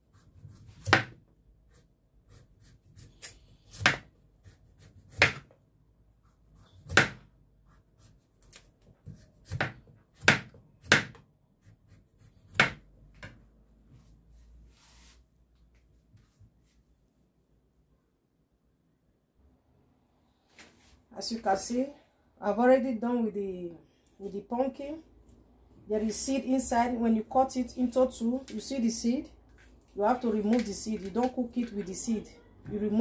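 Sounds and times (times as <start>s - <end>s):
knife cutting on plastic board: 0.2s - 5.5s, 6.6s - 12.9s.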